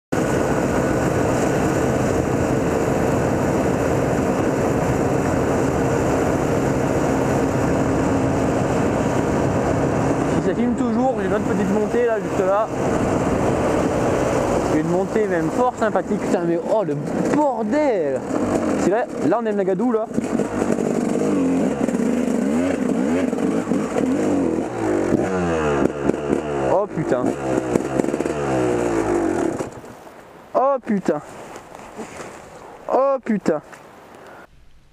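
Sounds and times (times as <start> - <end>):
wind rush: 0.1 - 16.6
motorcycle engine running: 0.1 - 30.0
road noise: 0.1 - 34.9.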